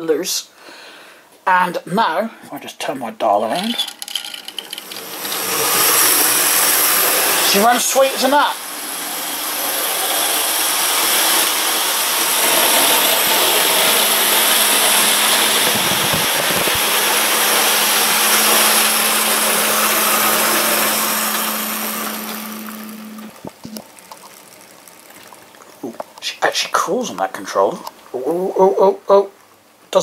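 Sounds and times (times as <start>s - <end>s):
model train motor whirring: 3.5s - 25.7s.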